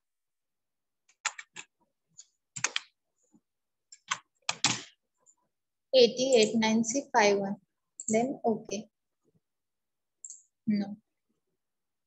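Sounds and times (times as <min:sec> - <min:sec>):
computer keyboard keystrokes: 0:01.1 - 0:01.7, 0:02.5 - 0:02.9, 0:03.9 - 0:04.9.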